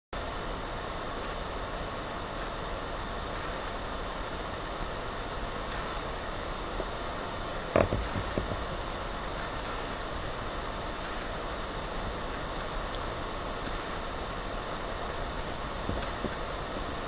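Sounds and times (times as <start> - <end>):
high electronic whine: 0.2 - 17.0
sudden knock: 7.8 - 8.6.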